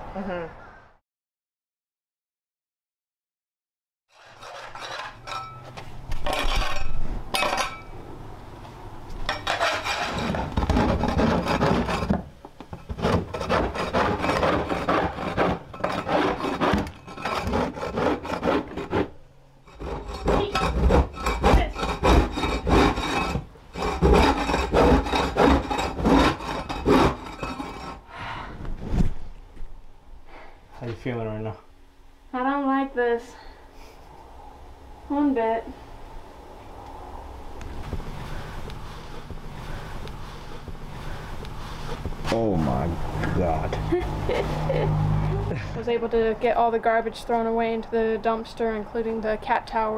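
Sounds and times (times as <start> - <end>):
floor scraper scraping floor: 4.1 - 6.9, 9.3 - 19.1, 19.7 - 28.0.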